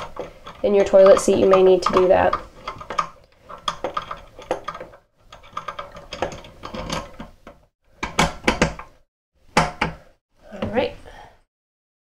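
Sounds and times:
screwdriver clicking and scraping: 0:00.0 - 0:08.8.

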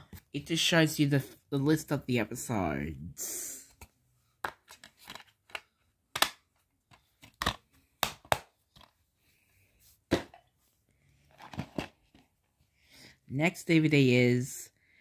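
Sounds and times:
plastic cases clicking and knocking: 0:04.4 - 0:09.0, 0:11.3 - 0:12.2.

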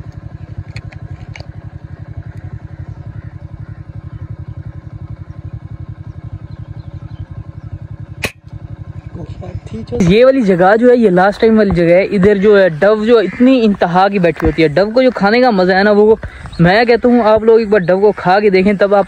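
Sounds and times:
motorcycle engine idling: 0:00.0 - 0:19.0
sharp crack: 0:08.2 - 0:08.6.

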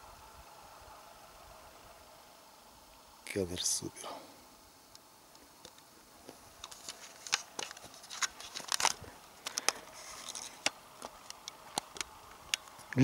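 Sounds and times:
faint steady hiss: 0:00.0 - 0:13.0
sharp crunches and clicks: 0:05.6 - 0:13.0.

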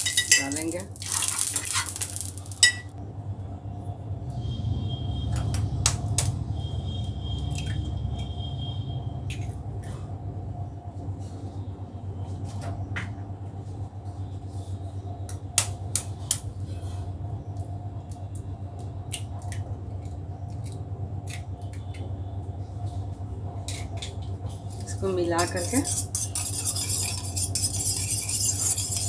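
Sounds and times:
eggshell cracking: 0:00.0 - 0:02.8
steady low hum: 0:00.0 - 0:29.0.

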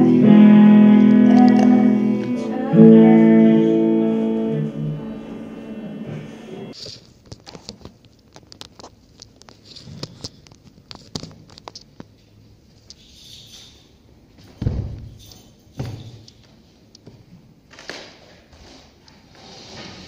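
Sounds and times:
amplified guitar: 0:00.0 - 0:06.8.

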